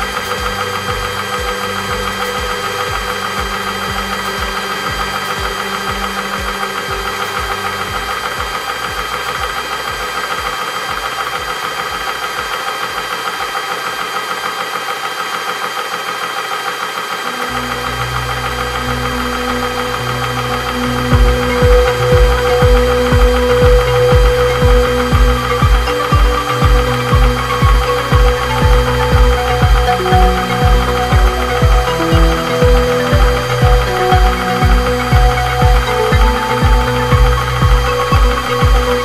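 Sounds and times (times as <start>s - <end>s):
air compressor motor whine: 0.0s - 39.0s
rhythmic piston knock: 0.0s - 39.0s.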